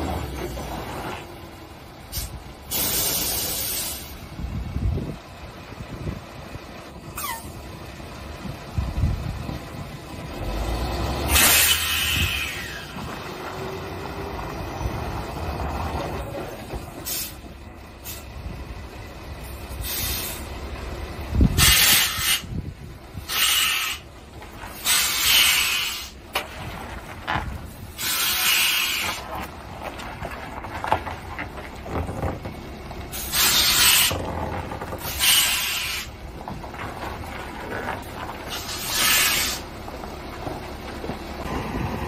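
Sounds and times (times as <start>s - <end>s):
truck rumbling on gravel: 0.0s - 42.0s
air brake hissing: 2.1s - 4.2s, 7.1s - 7.6s, 11.3s - 13.0s, 17.0s - 17.4s, 18.0s - 18.3s, 19.7s - 20.5s, 21.5s - 22.6s, 23.2s - 24.1s, 24.7s - 26.2s, 27.9s - 29.3s, 33.1s - 34.2s, 35.0s - 36.2s, 38.5s - 39.7s.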